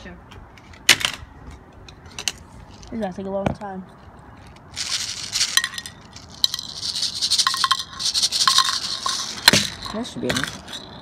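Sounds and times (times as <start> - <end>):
metal balls rattling: 4.4 - 11.0.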